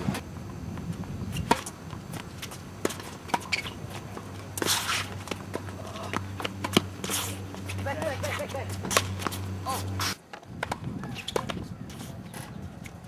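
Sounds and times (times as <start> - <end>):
tennis ball popping off rackets: 1.4 - 1.8, 2.4 - 11.7.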